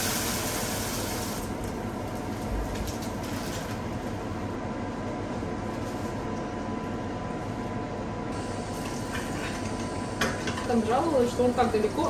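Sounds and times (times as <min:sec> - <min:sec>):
water hissing in hot oil: 0:00.0 - 0:01.7, 0:08.4 - 0:10.2.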